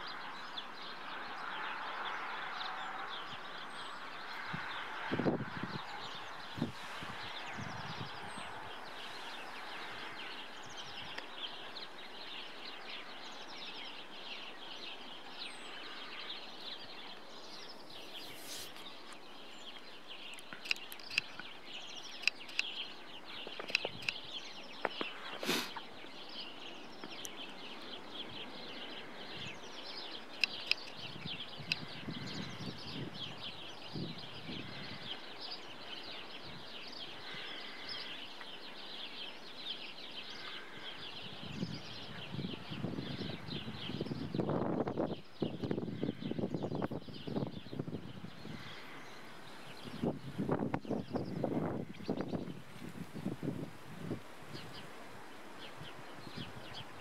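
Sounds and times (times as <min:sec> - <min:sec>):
small birds chirping: 0:00.0 - 0:57.0
camera wheel ticking: 0:20.6 - 0:21.3.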